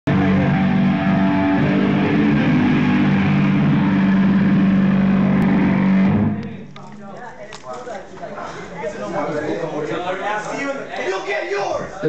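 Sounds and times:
distorted electric guitar and bass drone: 0.0s - 6.7s.

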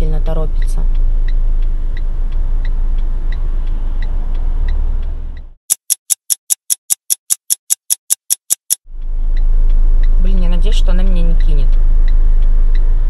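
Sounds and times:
car engine hum: 0.0s - 5.6s, 8.9s - 13.0s
fast ticking sound effect: 5.7s - 8.8s
hazard-light flasher ticking: 5.7s - 8.8s.

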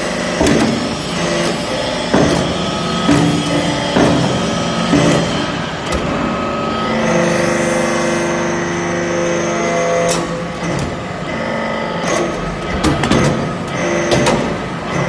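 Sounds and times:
hydraulic press machine whine: 0.0s - 15.0s
sharp clicks and knocks: 0.4s - 6.1s, 12.0s - 15.0s.

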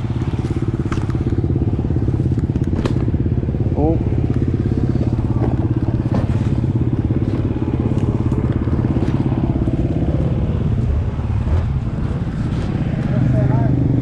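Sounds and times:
dirt bike engine idling: 0.0s - 14.0s
light knocks on bike: 2.5s - 3.1s.

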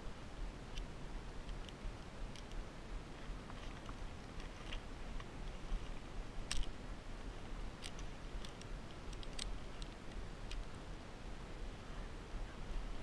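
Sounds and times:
low steady rumble: 0.0s - 13.0s
metal climbing hardware clinking: 6.5s - 6.8s, 7.8s - 10.7s.

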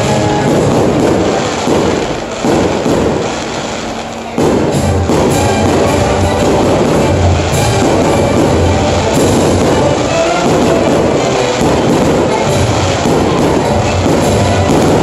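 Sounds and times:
fireworks bursting: 0.0s - 15.0s
loud music with drum beat: 4.5s - 15.0s.

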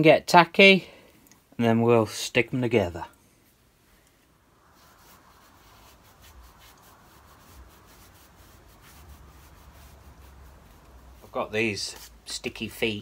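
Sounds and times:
hands rubbing leather on a board: 4.7s - 12.4s.

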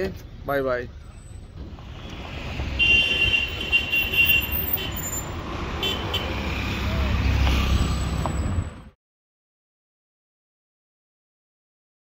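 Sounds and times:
vehicle engine and road rumble: 0.0s - 9.0s.

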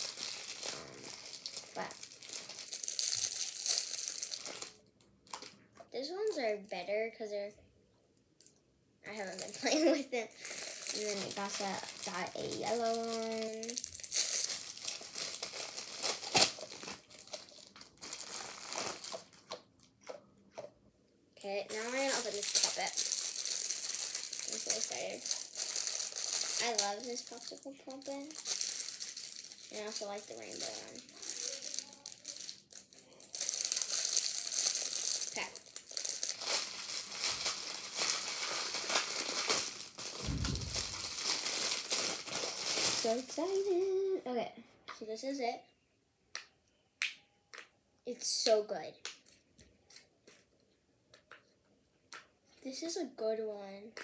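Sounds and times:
plastic packaging crinkling: 0.0s - 5.6s, 9.1s - 20.7s, 21.4s - 44.0s
soft low thump: 40.2s - 41.2s.

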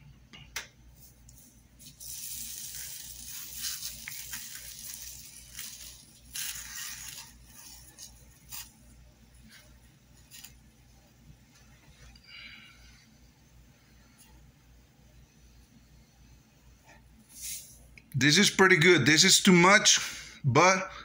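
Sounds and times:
iron filings pattering into tub: 1.8s - 8.8s.

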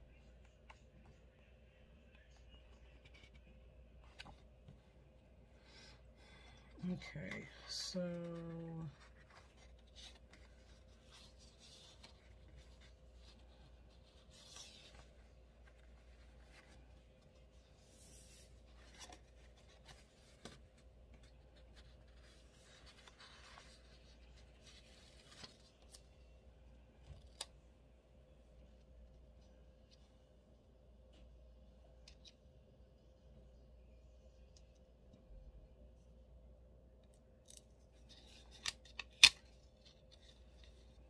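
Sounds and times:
faint steady hum: 0.0s - 41.0s
paper rustling: 7.1s - 26.2s.

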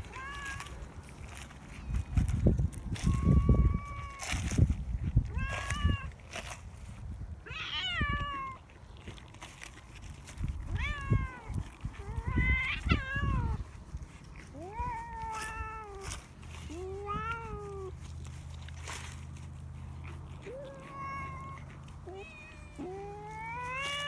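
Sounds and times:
cat meowing: 0.0s - 0.8s, 7.4s - 8.6s, 10.7s - 13.6s, 16.7s - 18.0s, 20.4s - 24.0s.

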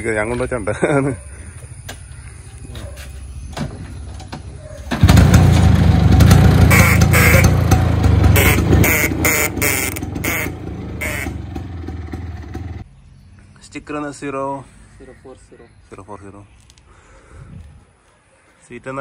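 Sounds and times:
scooter engine running: 4.8s - 12.8s
scooter horn honking: 6.4s - 12.1s.

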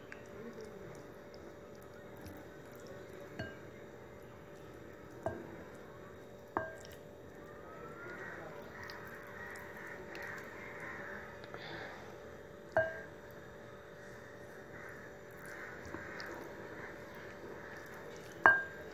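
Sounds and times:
clinks against bowl: 3.4s - 3.6s, 6.6s - 7.0s, 12.8s - 13.1s, 18.4s - 18.8s
hand squishing wet paste: 8.0s - 11.5s, 15.1s - 18.9s.

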